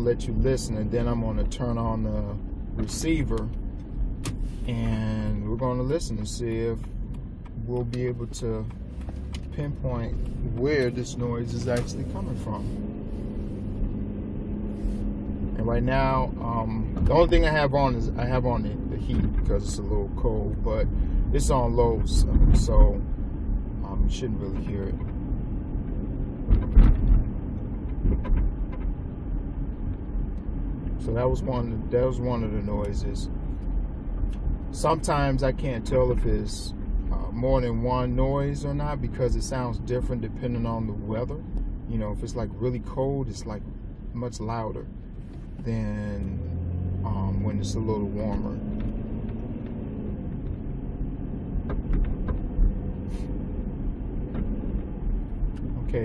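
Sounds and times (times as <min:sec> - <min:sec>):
car road rumble: 0:00.0 - 0:56.0
suspension clunk: 0:02.7 - 0:14.5, 0:24.5 - 0:30.7, 0:44.9 - 0:56.0.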